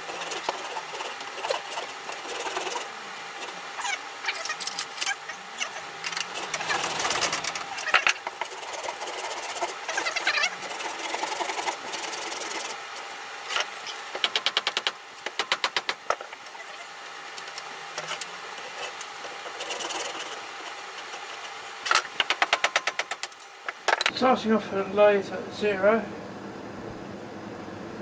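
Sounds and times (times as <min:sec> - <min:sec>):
handsaw cutting wood: 0:00.0 - 0:04.0, 0:06.2 - 0:12.8, 0:18.1 - 0:21.6.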